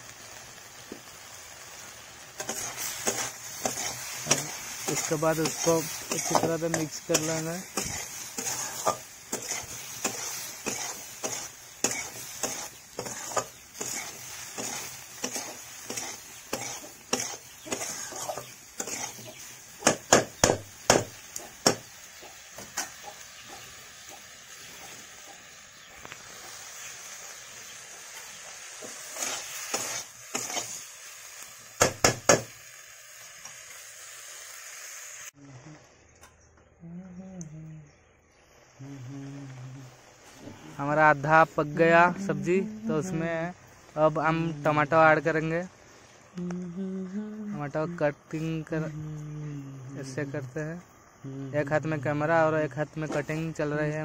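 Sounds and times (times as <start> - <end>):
food sizzling: 0.0 - 36.5, 38.1 - 54.0
metal spatula scraping a pan: 2.4 - 20.0, 28.7 - 30.8
spatula knocking on a pan: 31.8 - 32.5.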